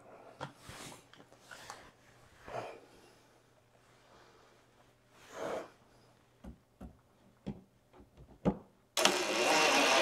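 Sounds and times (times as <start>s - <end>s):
cordless drill driving screw: 9.0s - 10.0s.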